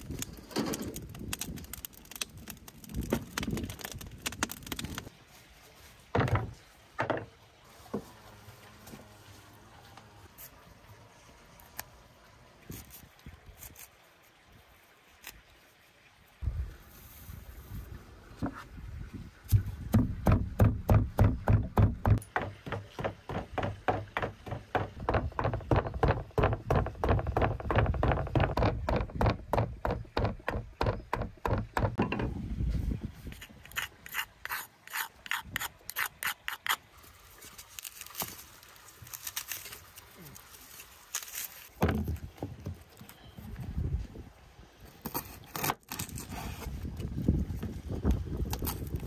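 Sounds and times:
pestle pounding in wooden mortar: 0:19.5 - 0:32.2.

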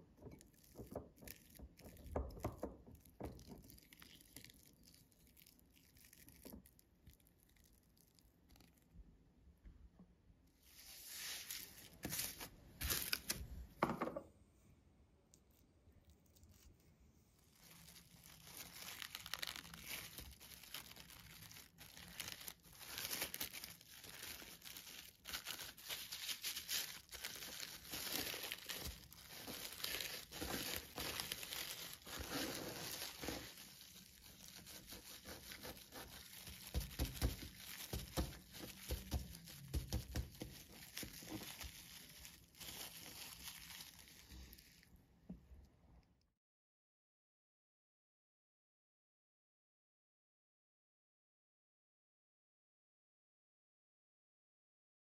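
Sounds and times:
cling film crinkling: 0:16.2 - 0:44.9.

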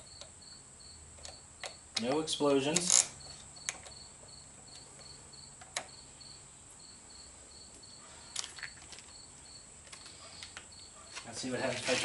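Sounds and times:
battery cables clicking: 0:01.2 - 0:04.0.

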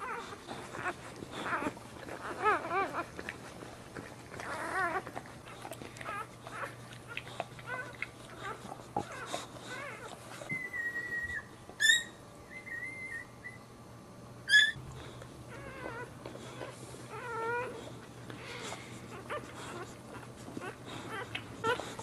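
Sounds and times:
puppies squeaking and whining: 0:00.0 - 0:13.7, 0:14.4 - 0:22.0
puppy sharp squeals: 0:07.7 - 0:13.6, 0:14.5 - 0:14.8.

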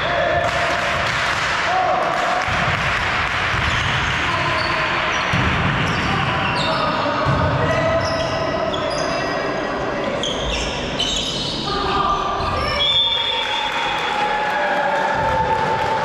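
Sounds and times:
shoes squeaking on court floor: 0:07.7 - 0:11.7.

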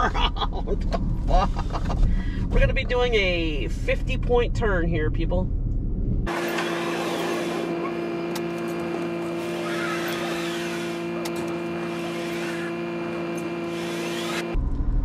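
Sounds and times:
electric cart motor whining: 0:06.3 - 0:14.6
squeals: 0:06.4 - 0:12.9.

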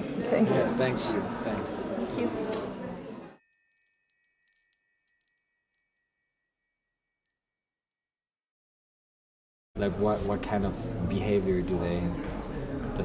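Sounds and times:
tinkling high chimes: 0:02.1 - 0:08.4.

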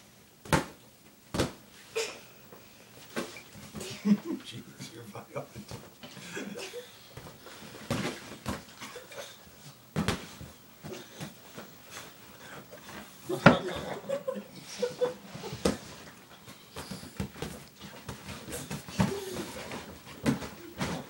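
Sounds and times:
smacks on inflatable punching bag: 0:00.5 - 0:01.6.

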